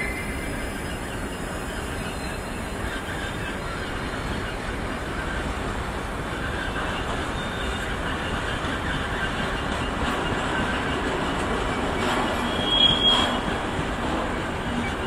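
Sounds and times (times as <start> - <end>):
wheel squeal: 0.0 - 4.1, 6.4 - 13.7
train wheels rumbling on rails: 0.0 - 15.0.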